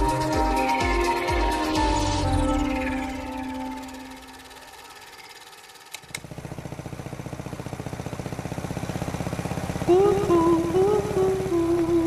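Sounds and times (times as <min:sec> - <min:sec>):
music melody: 0:00.0 - 0:05.3
motorcycle engine running: 0:00.0 - 0:12.0
engine starter clicks: 0:02.1 - 0:06.5.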